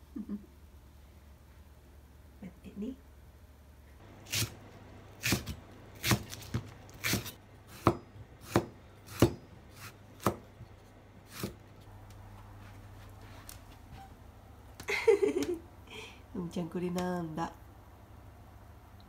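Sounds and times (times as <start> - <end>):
knife chopping on wooden board: 5.2 - 10.6, 11.3 - 11.6.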